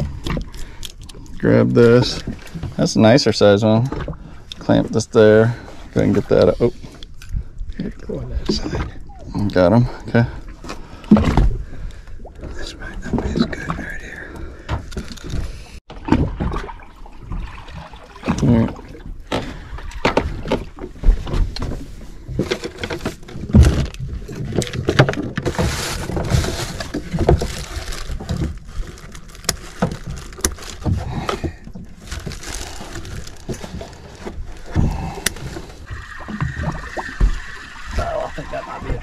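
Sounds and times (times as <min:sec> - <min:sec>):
water lapping at hull: 0:00.0 - 0:39.0
plastic bag rustling and crinkling: 0:25.4 - 0:31.3, 0:31.9 - 0:35.8.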